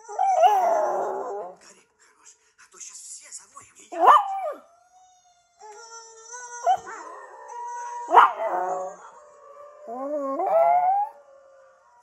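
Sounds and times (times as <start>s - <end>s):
small dog howling: 0.0s - 1.5s, 4.0s - 11.3s
wolf howls through laptop speakers: 6.6s - 12.0s.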